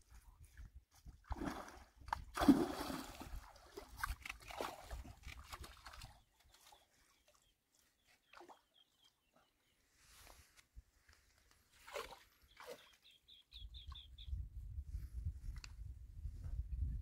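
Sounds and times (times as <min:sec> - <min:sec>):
fish splashing in water: 0:01.3 - 0:06.2.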